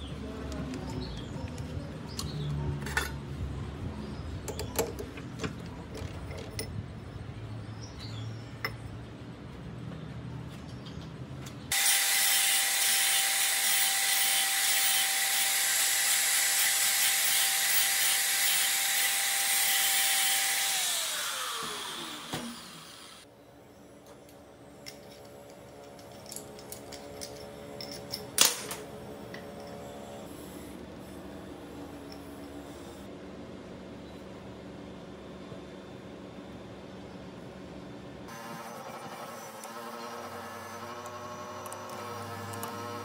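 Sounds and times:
angle grinder cutting steel: 11.7 - 23.2, 38.3 - 43.0.

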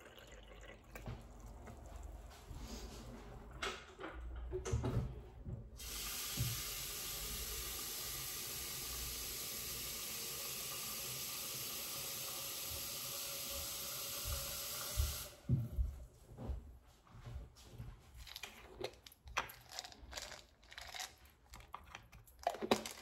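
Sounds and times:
kitchen tap running: 0.0 - 2.2, 5.8 - 15.5.

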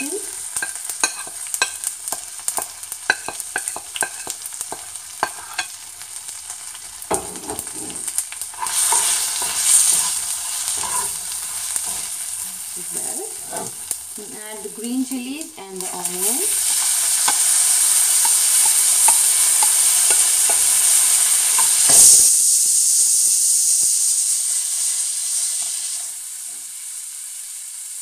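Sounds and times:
spoon stirring spices: 0.0 - 5.8, 7.1 - 13.9, 15.8 - 22.2
spices sizzling in hot oil: 0.0 - 28.0.

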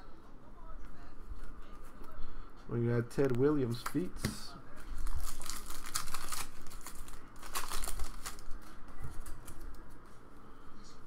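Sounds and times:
cards handled quietly: 3.2 - 11.0
wrapper tearing and crinkling: 5.0 - 9.7.

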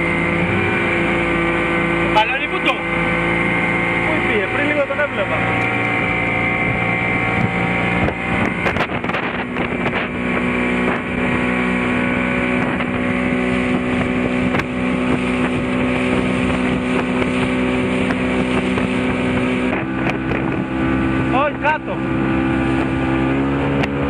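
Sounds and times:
outboard motor running: 0.0 - 24.0
water rushing past hull: 0.0 - 24.0.

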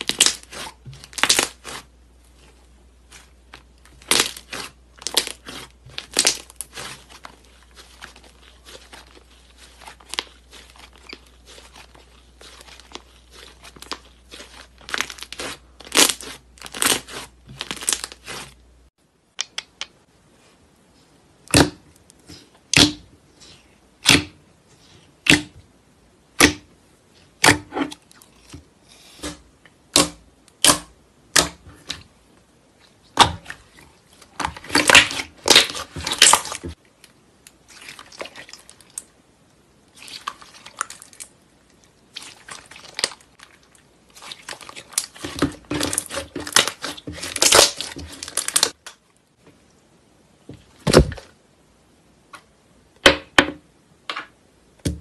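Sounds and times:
slime crackling and snapping: 0.0 - 1.8, 3.9 - 18.4, 34.4 - 36.7, 44.2 - 49.0.

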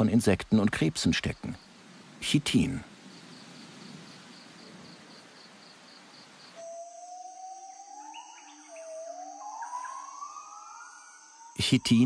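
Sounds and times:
steady hiss: 0.0 - 6.6
insect-like chirping: 0.0 - 12.0.

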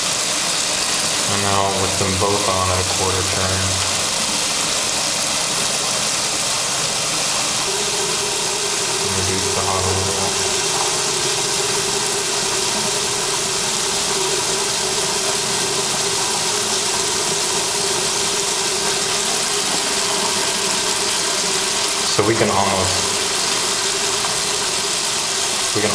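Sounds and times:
faucet water rushing into sink: 0.0 - 25.9
steady tone: 1.3 - 4.5, 7.5 - 19.1, 22.1 - 24.2.

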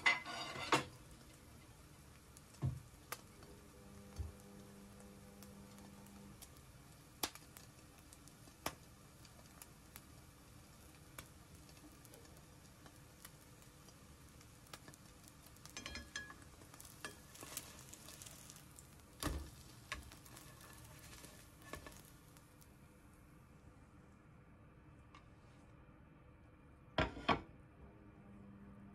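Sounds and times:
spatula knocking and scraping: 0.0 - 1.0
food sizzling in a frying pan: 0.0 - 23.4
pops and crackles: 5.7 - 10.1, 16.6 - 22.7.

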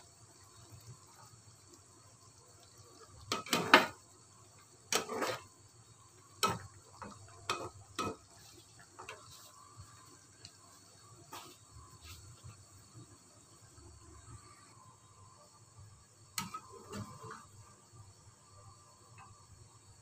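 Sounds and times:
metal spatula scraping a pan: 4.9 - 5.5.

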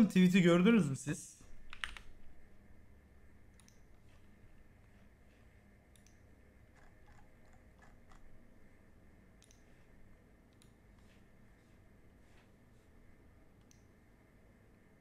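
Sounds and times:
mouse and keyboard clicks: 3.6 - 3.9, 6.8 - 8.3.

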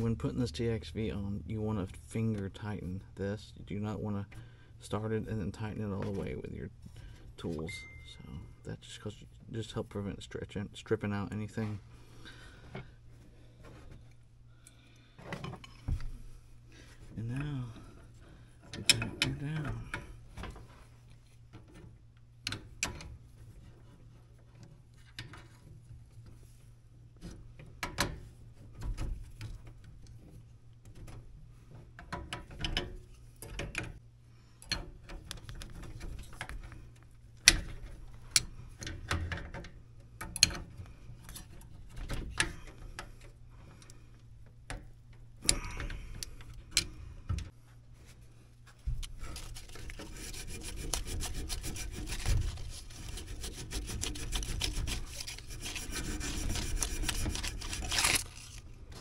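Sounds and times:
rough rubbing noise: 49.2 - 59.0.

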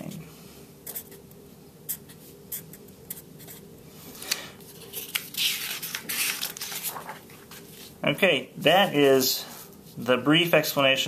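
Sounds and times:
marker scratching on paper: 0.8 - 1.2, 1.9 - 3.7
paper rustling: 4.2 - 8.0.

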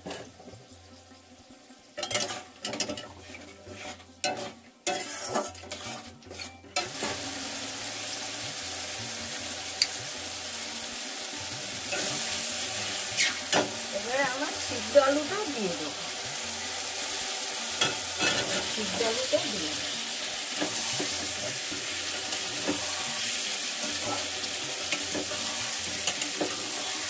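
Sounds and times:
hot oil sizzling: 0.0 - 27.0
metal spatula scraping a pan: 2.0 - 8.3, 11.7 - 27.0.

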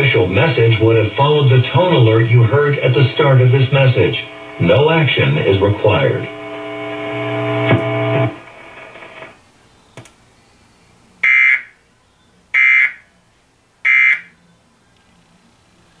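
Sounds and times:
buzzy data bursts from speaker: 0.0 - 9.4
steady hum: 0.0 - 11.3
click: 6.3 - 8.4, 10.0 - 10.2.

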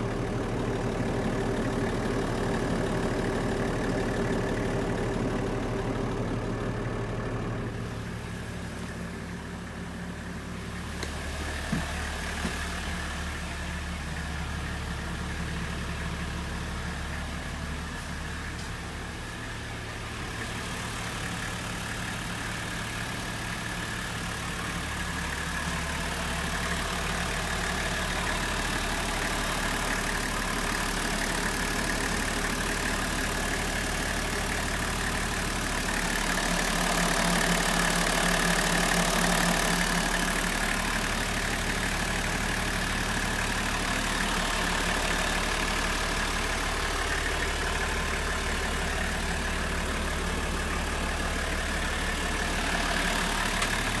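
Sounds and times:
diesel engine idling: 0.0 - 54.0.

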